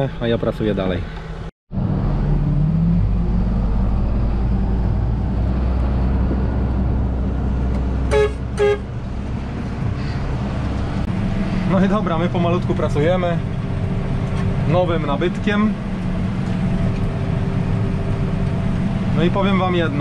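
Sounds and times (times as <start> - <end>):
tractor engine running: 1.8 - 20.0
horn toots: 8.0 - 9.0.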